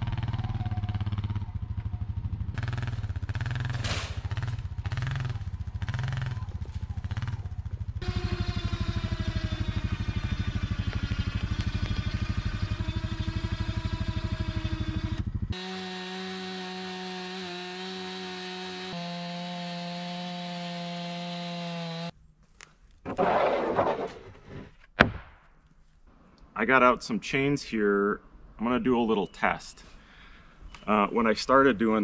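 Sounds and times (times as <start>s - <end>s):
atv engine throbbing: 0.0s - 22.1s
chainsaw cutting through log: 8.0s - 22.1s.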